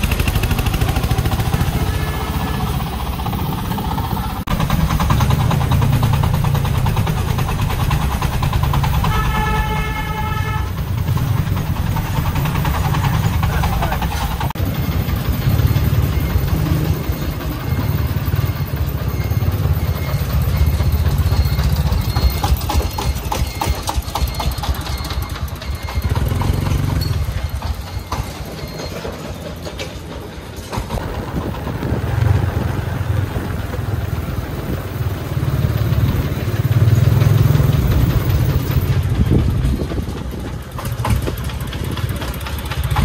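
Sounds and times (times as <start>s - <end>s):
diesel truck engine chugging: 0.0s - 43.0s.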